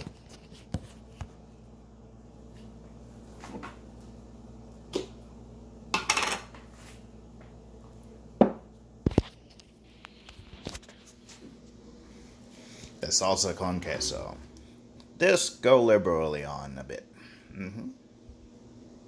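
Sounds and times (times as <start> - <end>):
low steady hum: 0.0 - 19.0
pots and utensils clattering: 6.0 - 6.5.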